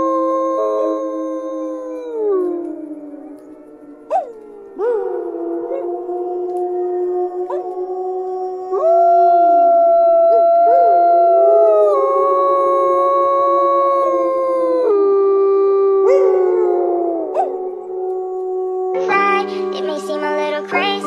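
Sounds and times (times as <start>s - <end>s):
wolves howling: 0.0s - 21.0s.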